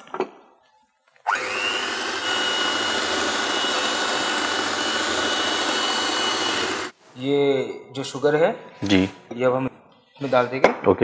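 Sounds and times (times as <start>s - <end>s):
electric hand mixer whining: 1.2s - 7.0s.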